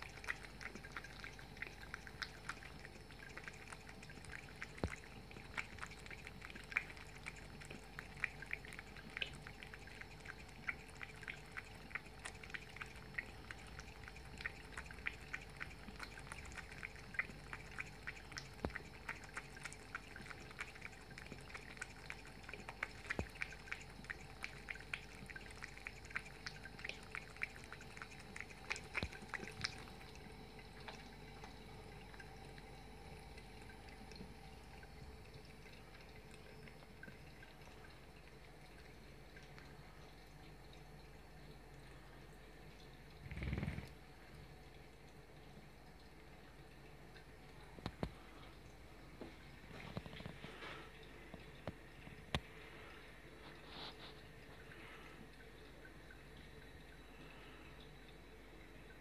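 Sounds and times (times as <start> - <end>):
cat lapping water: 0.0 - 58.2
tap water running into basin: 0.0 - 59.0.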